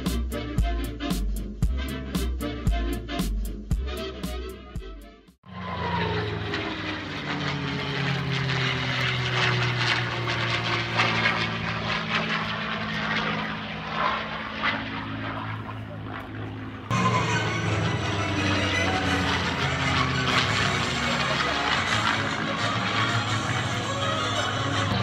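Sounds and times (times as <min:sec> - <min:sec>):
propeller airplane engine passing: 0:05.5 - 0:25.0.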